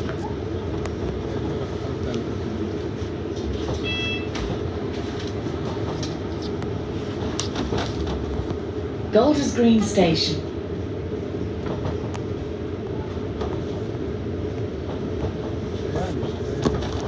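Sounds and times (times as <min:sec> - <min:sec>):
bus engine and road rumble: 0:00.0 - 0:17.0
brief high tone: 0:03.8 - 0:04.3.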